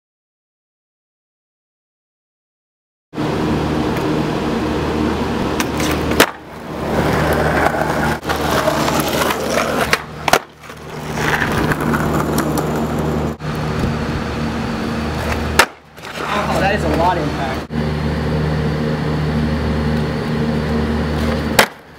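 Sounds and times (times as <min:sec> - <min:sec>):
skateboard wheels rolling on concrete: 0:03.2 - 0:21.9
skateboard clacking: 0:05.6 - 0:13.4, 0:15.2 - 0:17.0, 0:21.2 - 0:21.9.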